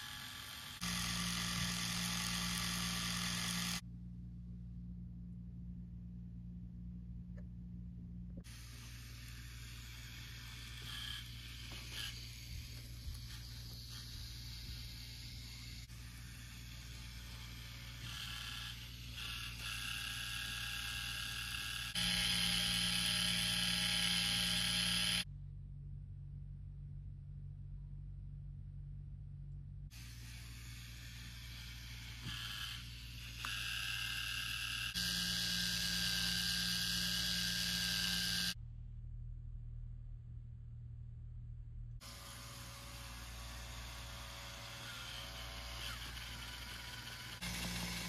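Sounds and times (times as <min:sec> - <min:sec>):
toy motor whirring: 0:00.0 - 0:03.8, 0:08.5 - 0:25.3, 0:30.0 - 0:38.6, 0:42.0 - 0:48.0.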